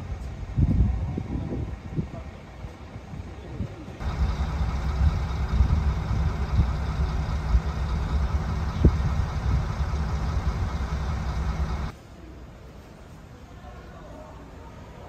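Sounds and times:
bus engine idling: 0.0 - 12.0.

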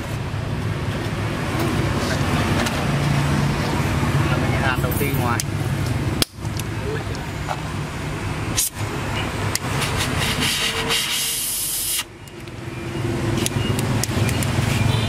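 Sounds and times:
brazing torch hissing: 9.7 - 12.1.

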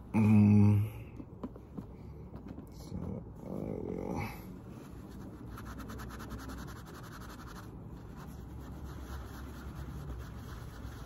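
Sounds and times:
pad rubbing on metal ring: 4.9 - 11.0.

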